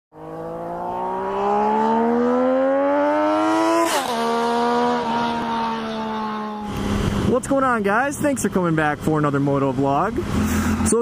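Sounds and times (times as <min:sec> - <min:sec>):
motorcycle engine accelerating: 0:00.1 - 0:07.6.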